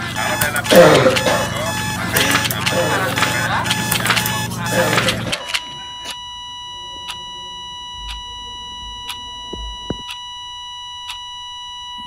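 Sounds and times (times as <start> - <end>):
clock-like ticks: 0.0 - 12.0
high-pitched electronic tone: 0.0 - 12.0
low thuds: 6.9 - 10.2.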